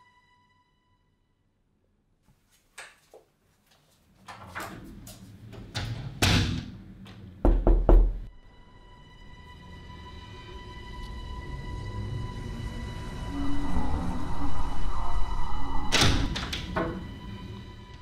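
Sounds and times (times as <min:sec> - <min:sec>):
heavy knocks on a door: 0:07.4 - 0:08.3
eerie music tones: 0:08.3 - 0:18.0
loud falling whoosh: 0:12.6 - 0:16.5.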